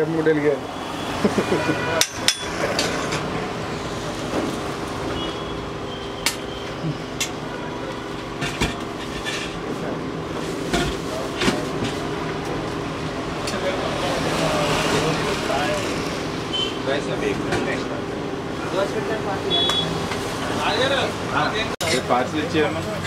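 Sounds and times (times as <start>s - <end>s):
metal utensils clinking: 2.0s - 3.3s.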